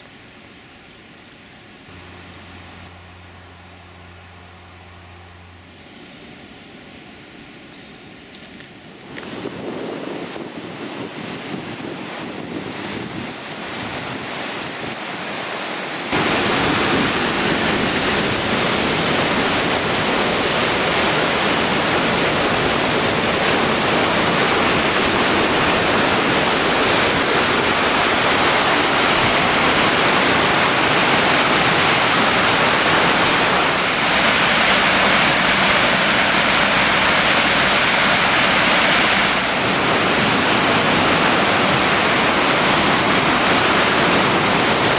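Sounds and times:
wind: 0:00.0 - 0:44.9
white water rushing: 0:08.9 - 0:44.9.

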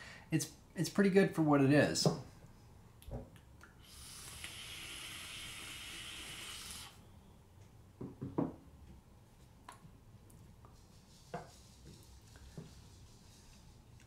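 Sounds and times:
vape coil hissing: 0:03.8 - 0:07.0.

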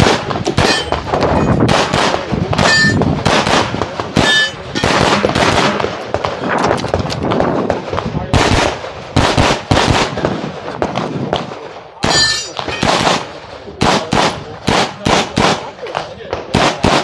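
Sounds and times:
pistol shots: 0:00.0 - 0:17.0
high ringing tones: 0:02.6 - 0:03.0, 0:04.2 - 0:04.9, 0:12.1 - 0:12.6.

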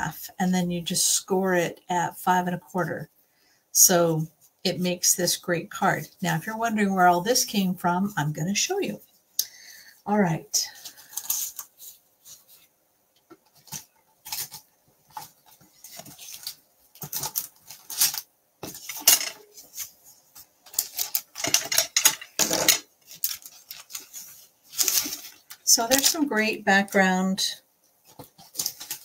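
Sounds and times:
paper rustling and tapping: 0:13.2 - 0:26.3, 0:27.9 - 0:29.0.

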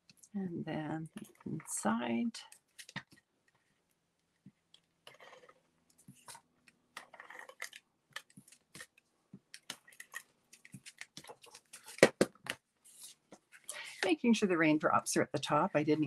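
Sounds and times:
paper rustling: 0:09.6 - 0:13.6.

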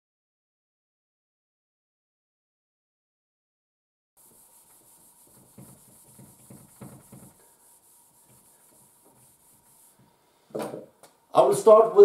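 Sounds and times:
marker rubbing on whiteboard: 0:04.2 - 0:10.1
steady hiss: 0:04.2 - 0:11.8.

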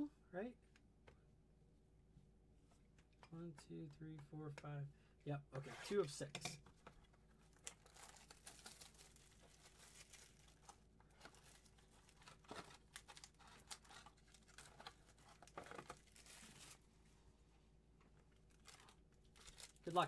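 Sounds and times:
packaging tearing and crinkling: 0:07.5 - 0:16.8, 0:18.5 - 0:20.0.

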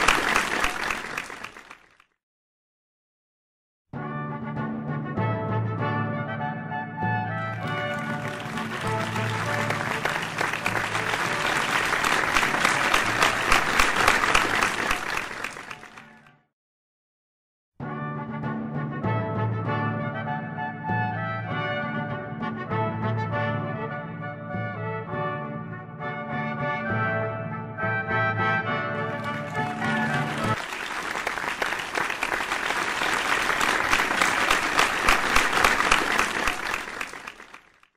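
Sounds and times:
crowd applause: 0:00.0 - 0:02.0, 0:07.5 - 0:16.3, 0:29.0 - 0:37.9.

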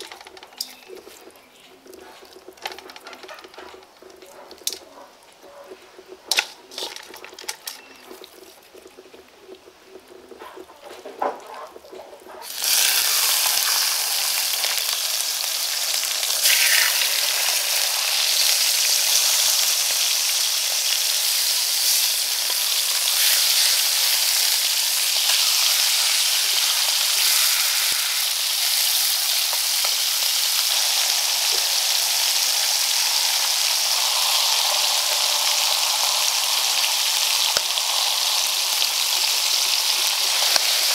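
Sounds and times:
meat sizzling in hot oil: 0:12.4 - 0:40.9.

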